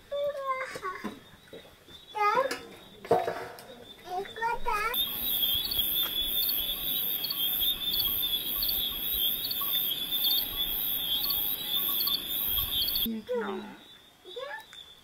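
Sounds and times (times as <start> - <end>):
crickets chirring: 4.2 - 15.0
pulsing high trill: 5.0 - 13.1.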